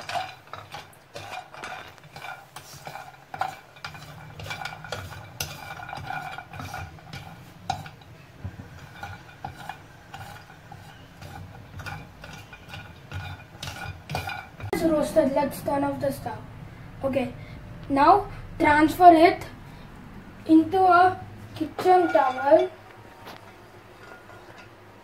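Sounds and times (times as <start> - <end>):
nuts rattling in a frying pan: 0.0 - 14.8.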